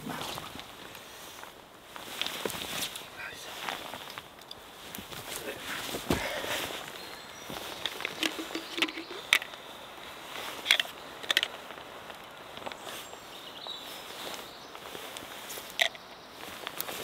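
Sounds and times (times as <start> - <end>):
coffee grinder parts clicking: 7.8 - 9.5.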